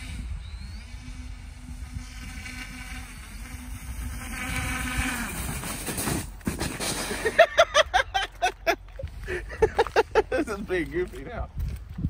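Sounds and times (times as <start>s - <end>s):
electric motors buzzing with high whine: 0.0s - 6.4s
man laughing: 7.1s - 10.8s.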